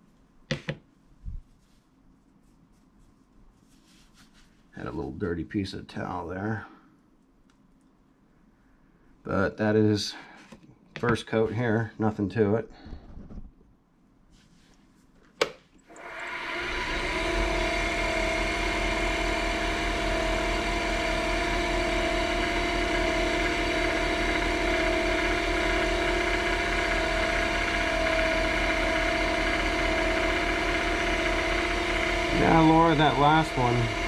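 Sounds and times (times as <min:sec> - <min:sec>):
lathe motor humming with whine: 0:15.9 - 0:34.0.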